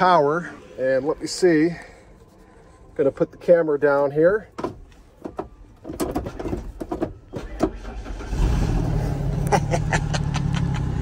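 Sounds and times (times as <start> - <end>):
truck engine starting and idling: 5.5 - 11.0.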